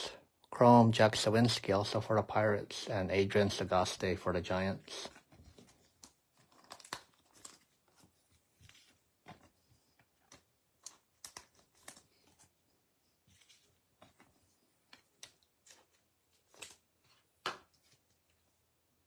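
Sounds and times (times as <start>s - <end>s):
trading cards rustling and tapping: 5.1s - 18.4s.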